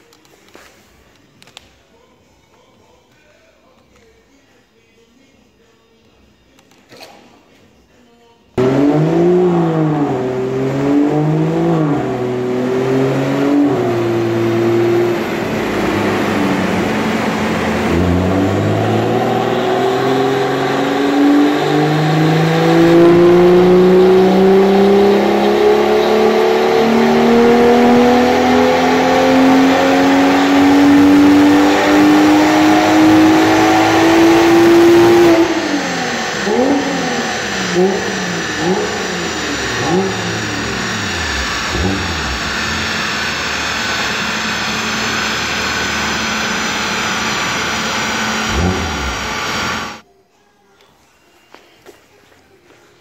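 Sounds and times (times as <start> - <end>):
car engine revving on dyno: 8.6 - 50.0.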